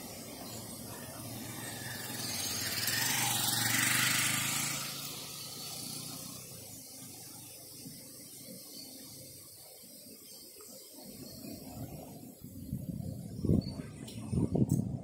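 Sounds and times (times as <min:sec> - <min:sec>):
vehicle passing by: 0:00.0 - 0:07.4
low rumble of traffic: 0:00.0 - 0:15.0.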